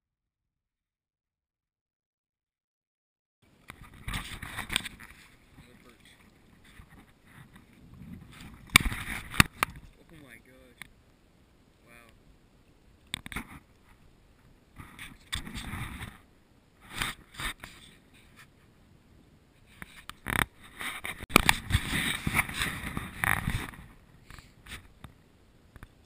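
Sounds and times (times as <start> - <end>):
rustling and scraping: 3.6 - 10.2, 13.2 - 18.7, 19.6 - 25.1.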